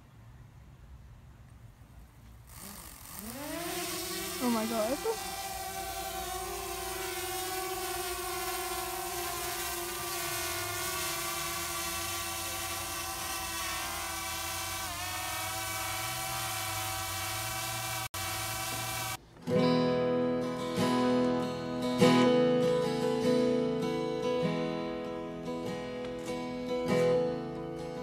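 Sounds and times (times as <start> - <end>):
drone propellers whining: 2.5 - 19.2.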